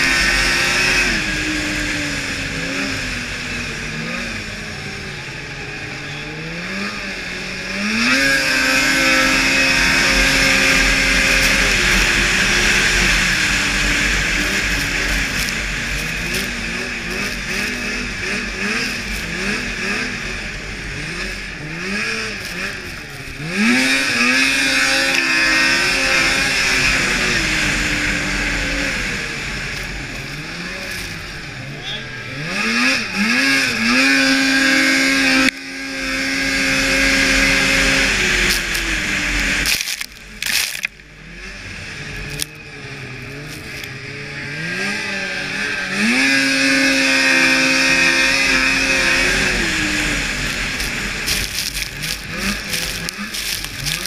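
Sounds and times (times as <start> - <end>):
snowmobile engine revving: 0.0 - 54.0.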